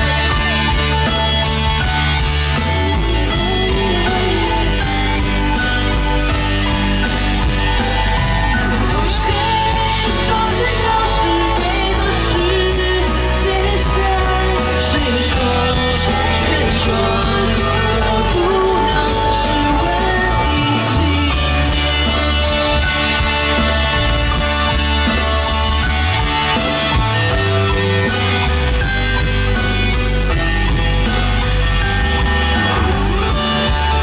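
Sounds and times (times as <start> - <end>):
rock band playing loudly: 0.0 - 34.0
woman singing into microphone: 8.8 - 23.2.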